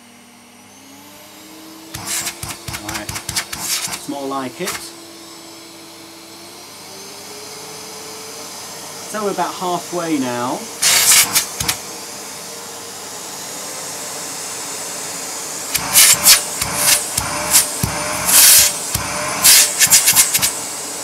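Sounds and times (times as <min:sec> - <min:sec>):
vacuum cleaner humming: 0:00.0 - 0:21.0
vacuum wand sucking bursts: 0:01.9 - 0:05.0, 0:10.7 - 0:12.0, 0:15.6 - 0:21.0.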